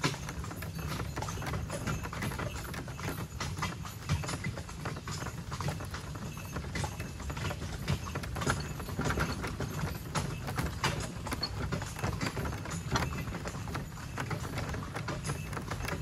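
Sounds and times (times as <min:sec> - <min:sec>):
cart wheels crunching over gravel: 0:00.0 - 0:16.0
hooves clip-clopping on gravel: 0:00.0 - 0:16.0.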